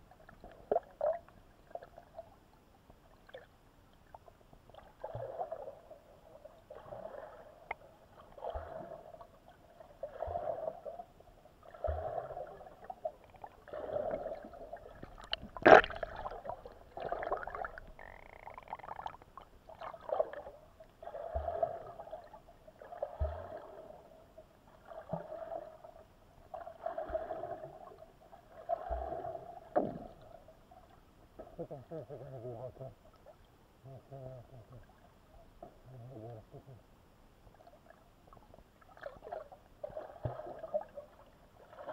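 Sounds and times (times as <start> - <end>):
muffled water surging: 4.3 - 25.8.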